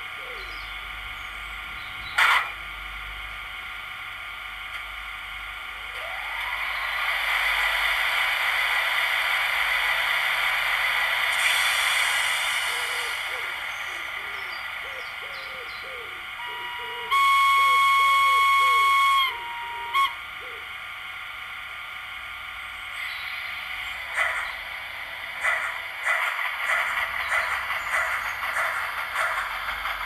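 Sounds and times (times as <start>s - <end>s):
locomotive whistle: 15.9s - 20.6s.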